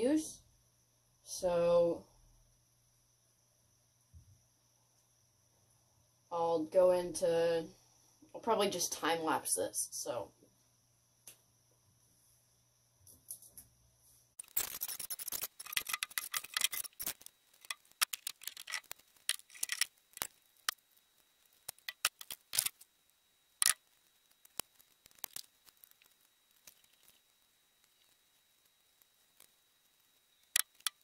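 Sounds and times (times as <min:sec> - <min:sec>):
thin branches crackling and clicking: 0:14.4 - 0:22.9, 0:23.6 - 0:31.0.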